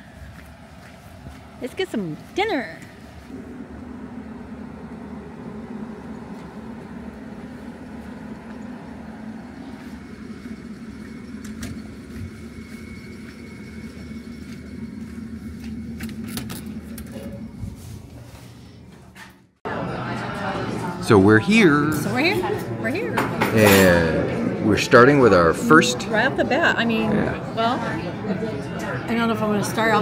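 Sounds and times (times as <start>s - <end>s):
low mechanical hum: 0.0s - 30.0s.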